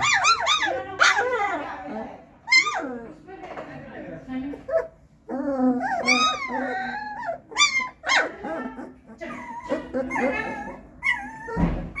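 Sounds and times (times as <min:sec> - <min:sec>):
puppies whining and yipping: 0:00.0 - 0:01.6, 0:02.5 - 0:03.0, 0:04.7 - 0:12.0
dull thump: 0:11.6 - 0:12.0.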